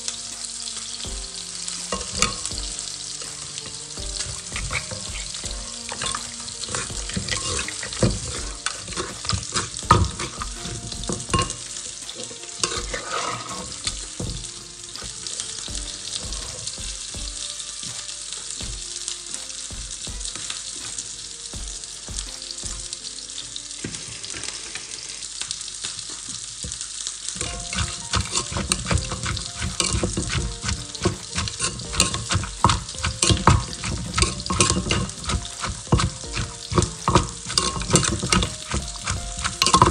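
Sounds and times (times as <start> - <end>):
metal spoon scraping mortar: 1.6 - 16.7, 27.4 - 39.9
pestle pounding in mortar: 4.0 - 11.7, 12.7 - 17.4, 27.5 - 39.9.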